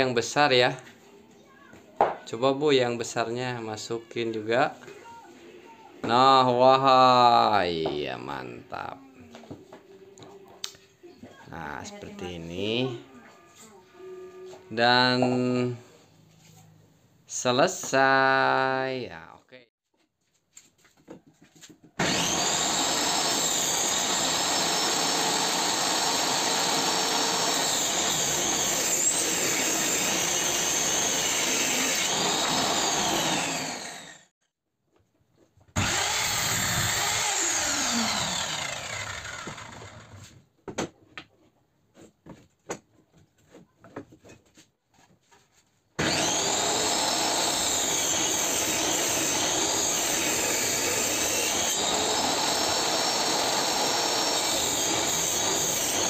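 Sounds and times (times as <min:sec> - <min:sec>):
miter saw crosscutting: 0:22.0 - 0:34.3, 0:35.8 - 0:40.2, 0:46.0 - 0:56.0
table saw ripping plywood: 0:22.0 - 0:34.3, 0:35.8 - 0:40.4, 0:46.0 - 0:56.0.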